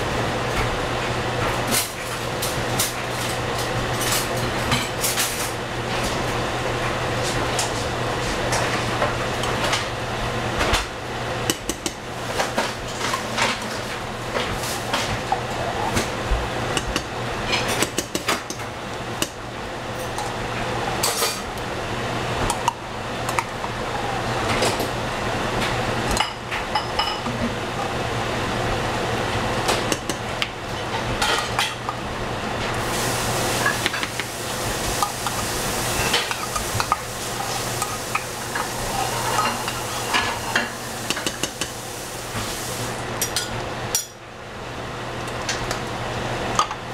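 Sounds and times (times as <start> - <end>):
simmering stew hissing: 32.8 - 43.1.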